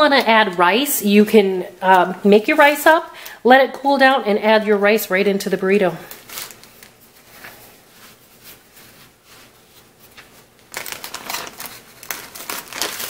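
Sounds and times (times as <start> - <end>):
plastic bag crinkling: 6.0 - 13.0
tortilla rustling on cutting board: 6.1 - 13.0.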